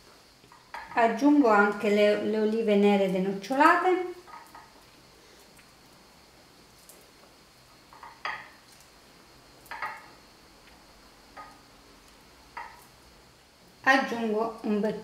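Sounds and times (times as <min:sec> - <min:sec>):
olives tapping metal pan: 0:00.5 - 0:02.0, 0:03.4 - 0:04.8, 0:07.9 - 0:08.6, 0:09.6 - 0:10.2, 0:11.3 - 0:11.6, 0:12.5 - 0:12.9.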